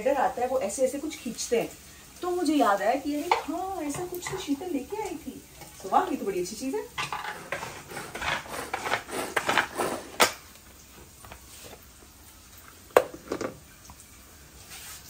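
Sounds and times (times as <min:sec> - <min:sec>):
plastic food chopper rattling: 0:07.4 - 0:10.4.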